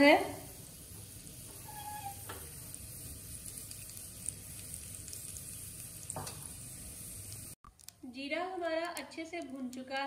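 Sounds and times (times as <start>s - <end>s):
seeds sizzling in hot oil: 0.0s - 8.0s.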